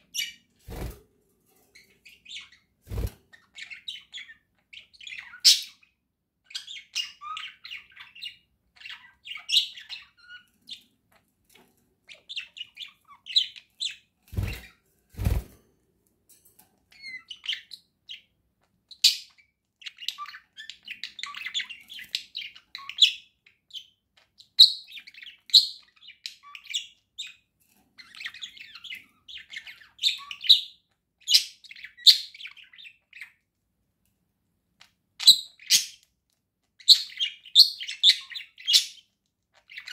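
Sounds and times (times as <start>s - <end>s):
budgerigars chirping: 1.8s - 5.9s, 6.5s - 10.9s, 18.9s - 27.4s, 28.0s - 33.4s, 35.2s - 36.0s, 36.8s - 39.9s.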